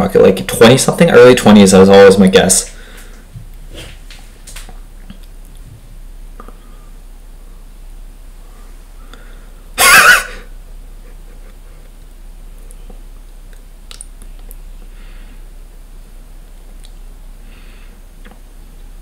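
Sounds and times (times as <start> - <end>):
man laughing loudly: 11.0 - 12.0.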